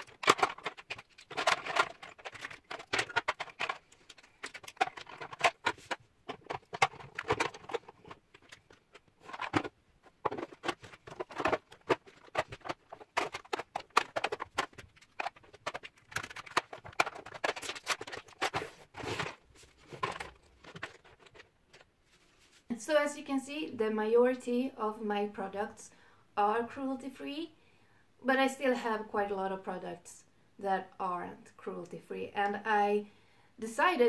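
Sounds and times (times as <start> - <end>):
plastic containers clicking and clattering: 0.0 - 21.9.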